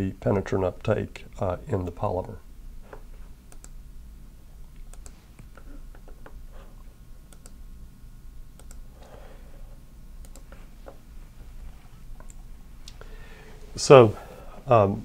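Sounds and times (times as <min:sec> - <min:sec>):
low steady hum: 0:00.0 - 0:15.0
keyboard and mouse clicks: 0:02.9 - 0:03.8, 0:04.8 - 0:06.4, 0:07.3 - 0:07.6, 0:08.6 - 0:08.8, 0:10.2 - 0:10.6.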